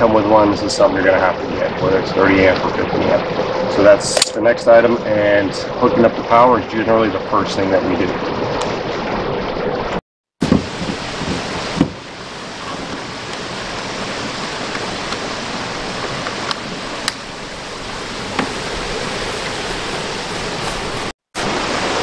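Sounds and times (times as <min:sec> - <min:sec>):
creek rushing: 0:10.4 - 0:22.0.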